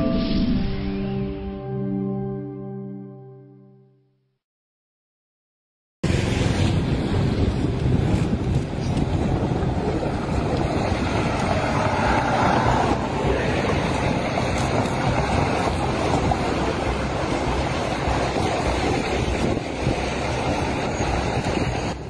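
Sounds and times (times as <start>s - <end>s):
vehicles driving past: 6.0s - 22.0s
wind rumble on microphone: 6.0s - 22.0s.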